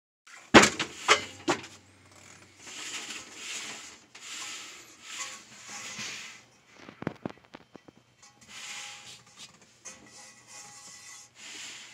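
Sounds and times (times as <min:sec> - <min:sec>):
hand rubbing enamel pan: 0:02.5 - 0:11.9.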